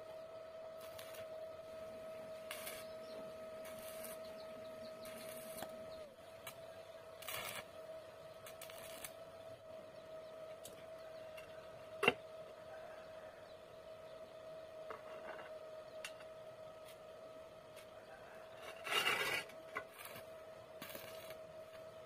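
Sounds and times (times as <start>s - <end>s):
steady high-pitched hum: 0.0s - 22.0s
metal rods scraping and clinking: 18.6s - 20.2s.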